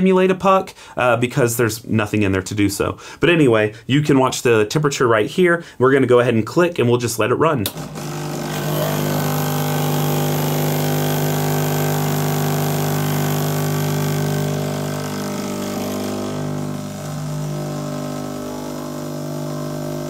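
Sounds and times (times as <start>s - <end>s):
espresso machine pump buzzing: 7.7s - 20.0s.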